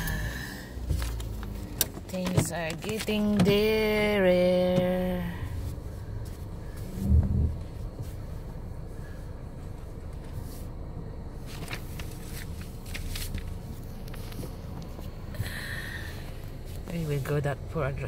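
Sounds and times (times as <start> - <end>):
car engine cabin rumble: 0.0 - 18.0
loud thump: 7.0 - 7.6
light clicks and rustles: 11.4 - 15.4.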